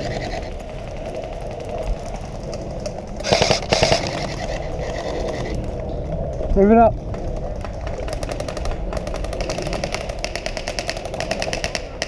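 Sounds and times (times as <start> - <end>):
outdoor background noise: 0.0 - 12.0
airsoft gun rapid burst: 3.2 - 5.6, 8.2 - 12.0.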